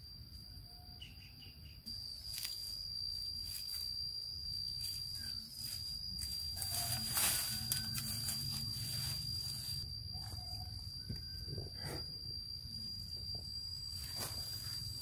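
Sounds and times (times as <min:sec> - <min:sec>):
insect singing high-pitched note: 0:00.2 - 0:15.0
footfalls in dry leaf litter: 0:04.9 - 0:09.8.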